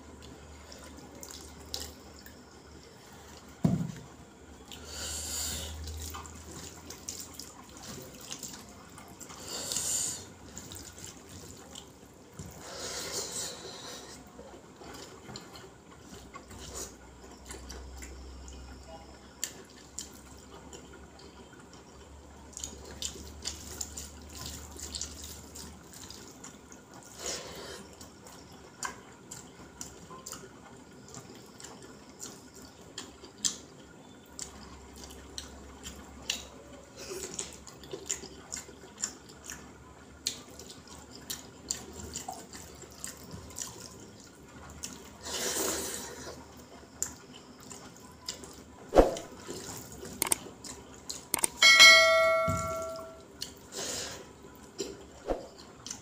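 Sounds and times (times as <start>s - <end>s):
wet chewing and lip smacking: 31.1s - 45.1s, 47.0s - 51.6s.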